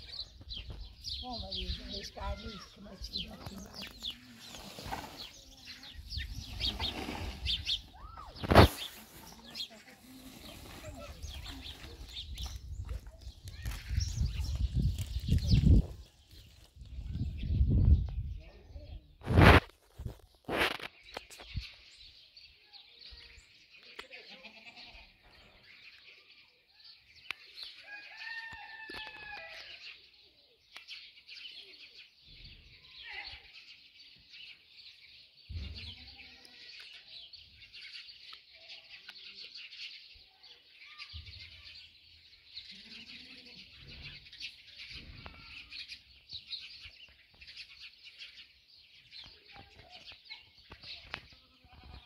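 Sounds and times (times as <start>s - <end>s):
birds chirping: 0.0s - 52.0s
rooster crowing: 27.9s - 29.7s.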